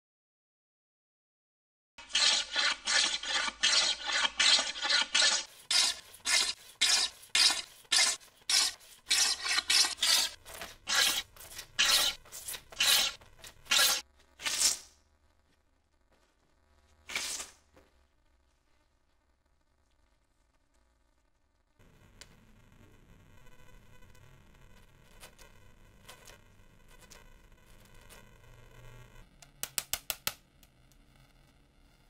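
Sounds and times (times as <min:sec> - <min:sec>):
hand plane shaving wood: 0:02.0 - 0:14.0.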